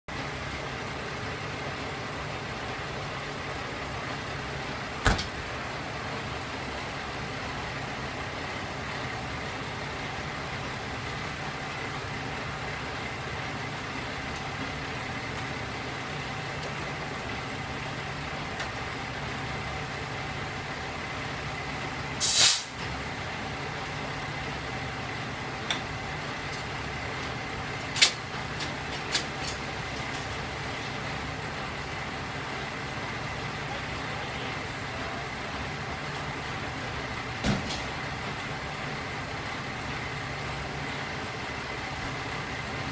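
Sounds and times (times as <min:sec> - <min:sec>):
diesel engines idling: 0:00.1 - 0:42.9
air hiss: 0:22.2 - 0:22.8.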